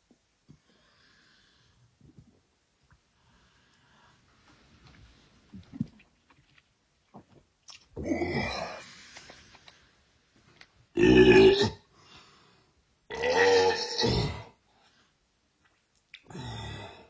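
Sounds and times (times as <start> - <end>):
loud belches: 11.0 - 11.8, 13.1 - 14.5.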